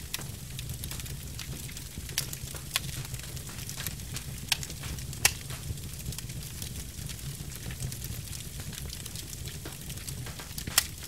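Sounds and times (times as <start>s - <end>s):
log fire crackling: 0.0s - 11.0s
low fire rumble: 0.0s - 11.0s.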